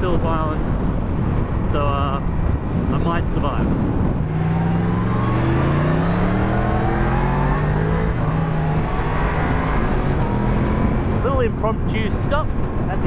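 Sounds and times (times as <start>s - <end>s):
wind rushing: 0.0s - 13.0s
motorcycle engines accelerating: 3.8s - 13.0s.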